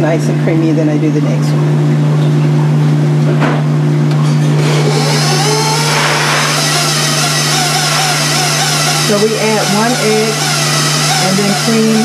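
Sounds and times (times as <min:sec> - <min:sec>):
stand mixer motor hum: 0:04.4 - 0:12.0.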